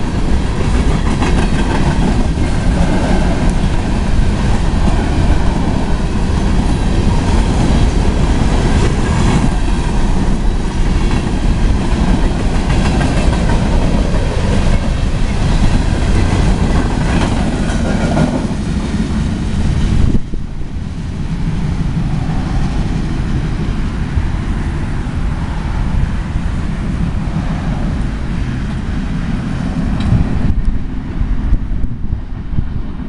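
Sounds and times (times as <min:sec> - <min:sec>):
low train rumble: 0:00.0 - 0:33.0
train wheels clacking over rail joints: 0:00.2 - 0:20.2.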